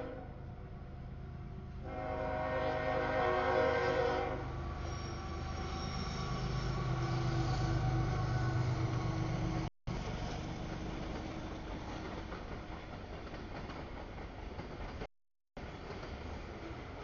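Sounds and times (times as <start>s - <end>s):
train wheels rumbling on rails: 1.5s - 17.0s
wheel squeal: 4.8s - 9.2s.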